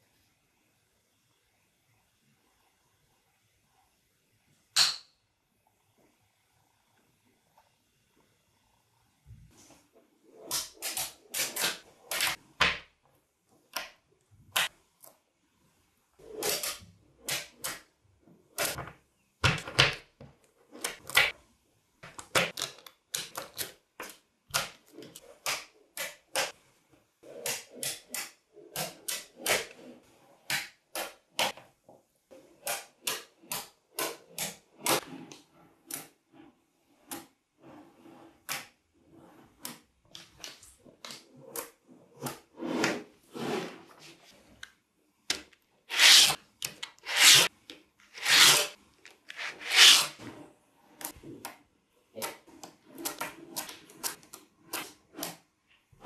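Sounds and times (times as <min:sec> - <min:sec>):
balls scraping on plastic sheet: 0:27.1 - 0:30.5, 0:32.3 - 0:44.6, 0:45.8 - 0:51.3, 0:52.4 - 0:55.4.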